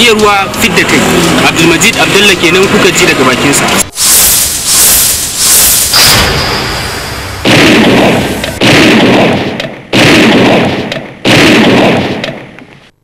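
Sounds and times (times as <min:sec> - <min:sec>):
loud booms: 0:04.1 - 0:12.5.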